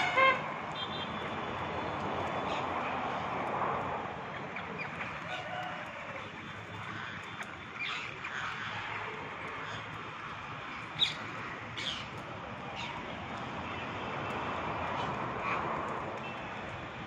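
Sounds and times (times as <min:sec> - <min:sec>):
parakeets screeching and chirping: 0:04.3 - 0:13.1.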